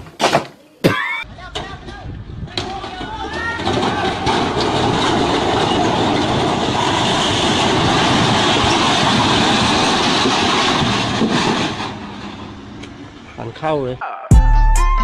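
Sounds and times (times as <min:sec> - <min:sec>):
concrete crashing and breaking: 0:02.6 - 0:07.7.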